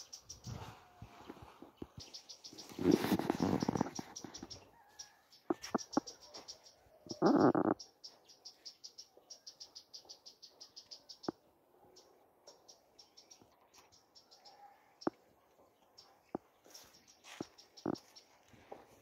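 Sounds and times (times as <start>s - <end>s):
rustling noise: 0.4s - 4.6s
insect chirping: 7.1s - 7.8s.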